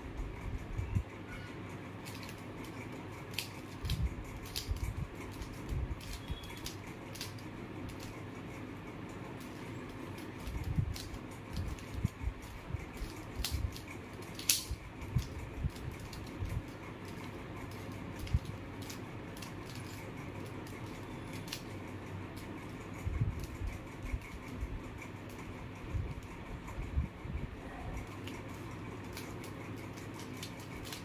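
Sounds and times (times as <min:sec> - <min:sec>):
puzzle cube clicking as turned: 0:02.0 - 0:08.3, 0:09.4 - 0:21.8, 0:28.1 - 0:31.0.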